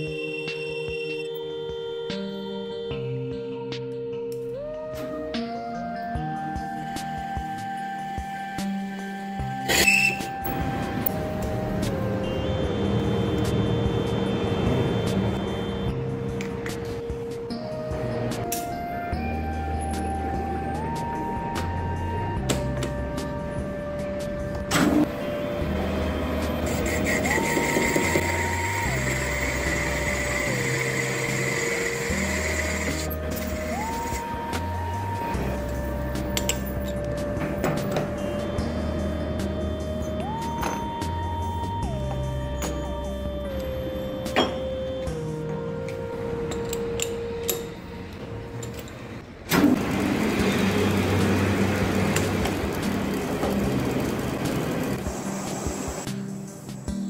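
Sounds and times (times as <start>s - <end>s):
music with gliding notes and bass: 0.0s - 57.0s
metal lathe cutting metal: 26.2s - 34.3s.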